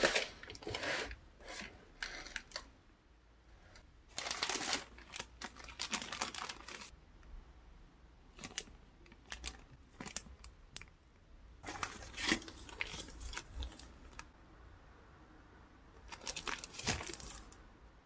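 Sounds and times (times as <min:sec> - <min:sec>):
plastic bags crinkling: 0:04.1 - 0:06.9, 0:08.3 - 0:10.5, 0:11.6 - 0:14.3, 0:16.0 - 0:17.6.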